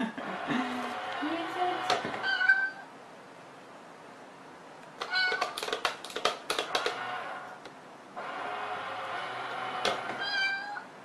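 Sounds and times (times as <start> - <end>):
cat meowing: 2.2 - 2.9, 5.0 - 5.6, 10.2 - 10.9
toy mechanism clicks and rattles: 5.0 - 7.1.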